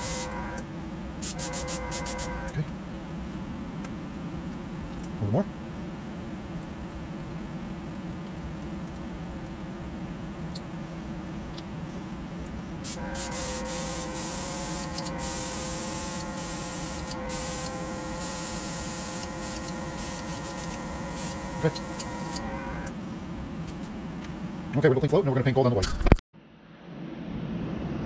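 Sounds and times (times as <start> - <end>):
airbrush spraying hiss: 0.0 - 0.4, 1.2 - 2.3, 12.8 - 22.4
compressor humming: 0.0 - 2.6, 12.8 - 22.9.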